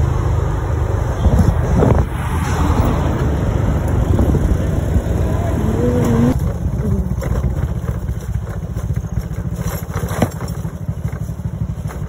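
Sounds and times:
motorcycle engine running: 3.4s - 12.0s.

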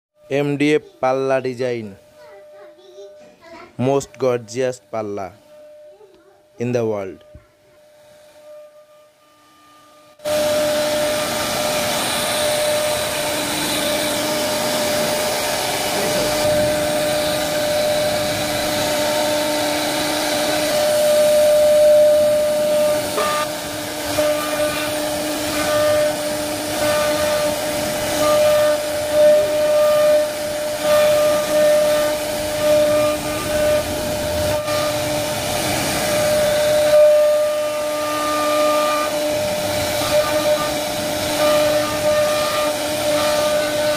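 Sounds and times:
router spindle high whine: 3.8s - 43.9s
hiss of bit cutting wood: 9.5s - 43.9s.

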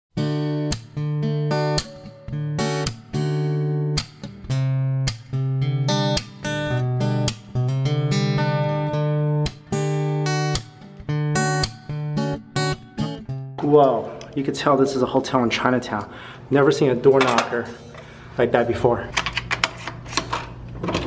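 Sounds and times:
acoustic guitar melody: 0.2s - 15.5s.

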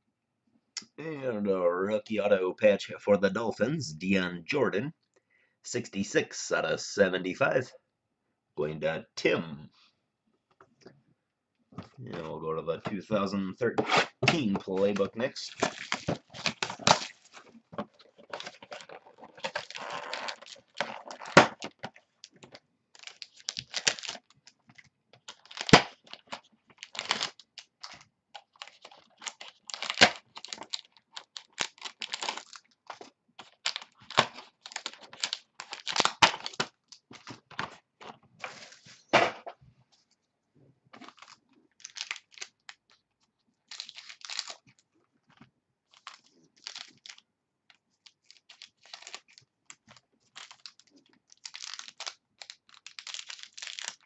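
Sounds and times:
plastic wrappers tearing and crinkling: 14.0s - 24.6s, 25.2s - 37.3s, 41.0s - 43.0s, 43.6s - 44.8s, 45.9s - 47.2s, 47.8s - 54.0s.

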